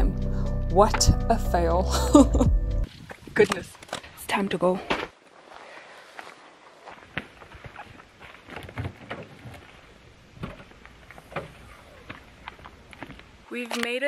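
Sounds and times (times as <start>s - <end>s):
suitcase wheels rattling on dirt: 5.8s - 14.0s.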